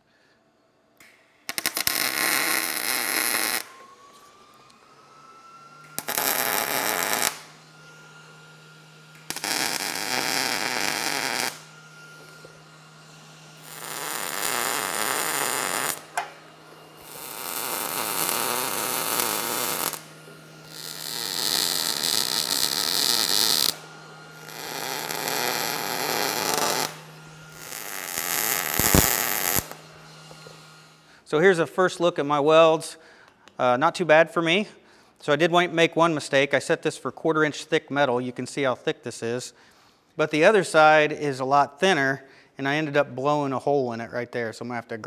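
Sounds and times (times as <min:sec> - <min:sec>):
welding arc crackling hiss: 0:01.0 - 0:04.8, 0:05.8 - 0:31.6.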